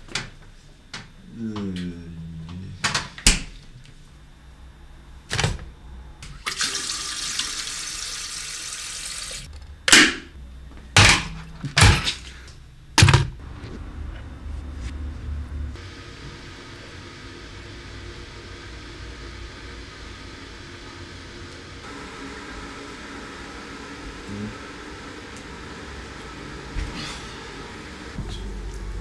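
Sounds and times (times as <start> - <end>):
tap water filling a kettle: 6.2 - 9.5
kitchen things knocking and clunking: 10.9 - 12.4, 13.0 - 13.4.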